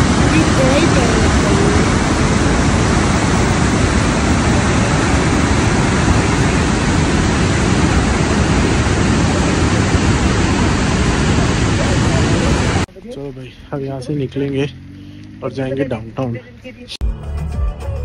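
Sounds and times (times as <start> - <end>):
waterfall and rapids rushing: 0.0 - 12.9.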